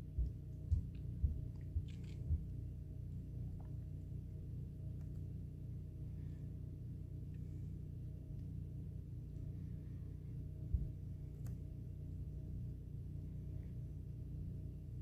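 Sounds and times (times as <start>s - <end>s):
soft low thumps: 0.0s - 2.8s, 10.6s - 11.3s
faint hum: 0.0s - 15.0s
low rumble: 0.0s - 15.0s.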